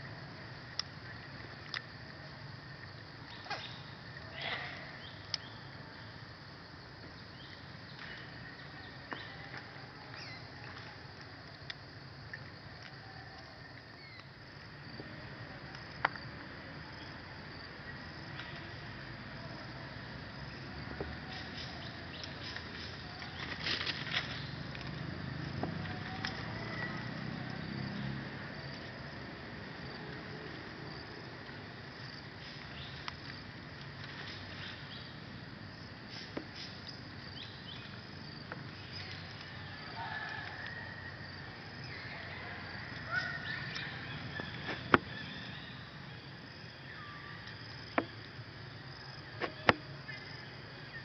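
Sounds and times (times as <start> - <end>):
insects humming: 0.0 - 51.0
outdoor background hiss: 0.0 - 51.0
sharp crackles: 21.3 - 25.0
rustling of plant stems: 21.5 - 25.1.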